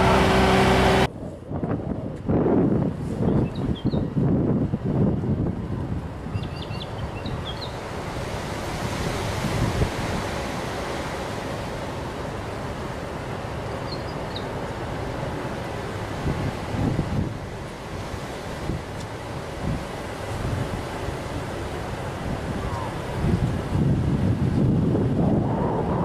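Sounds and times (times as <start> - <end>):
heavy trucks running: 0.0 - 1.1
wind noise on microphone: 0.0 - 10.6, 16.2 - 20.9, 22.1 - 26.0.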